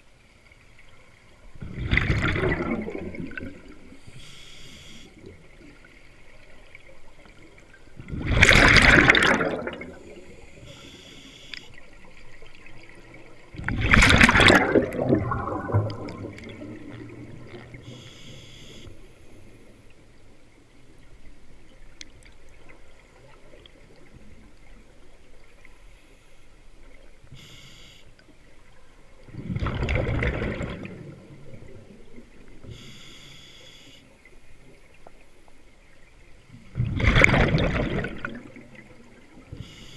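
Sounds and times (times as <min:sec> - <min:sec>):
exhaled bubbles rushing underwater: 0:01.0 - 0:04.1, 0:05.1 - 0:10.8, 0:11.8 - 0:18.1, 0:28.6 - 0:32.7, 0:34.7 - 0:39.7.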